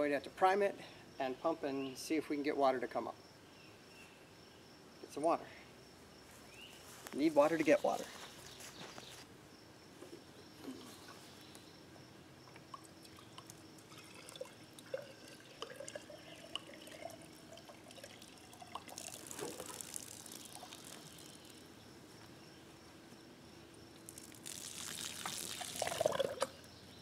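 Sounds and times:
water pouring into pump: 12.8s - 21.6s, 24.1s - 26.6s.

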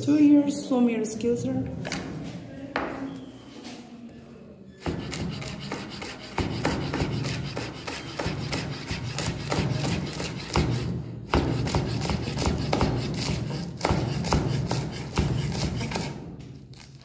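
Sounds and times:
knife chopping on wooden board: 4.9s - 16.2s.

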